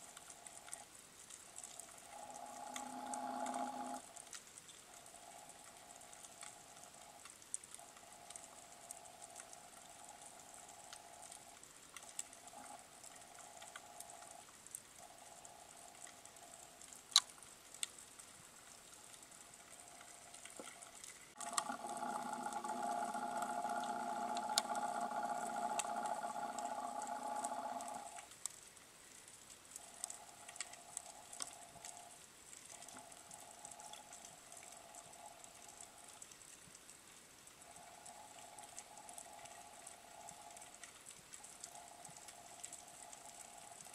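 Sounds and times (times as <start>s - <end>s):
faint underwater crackle: 0.0s - 43.9s
faint single-pitched hum: 1.6s - 4.1s, 21.4s - 28.3s
multi-pitched hum: 1.8s - 4.1s, 21.4s - 28.3s.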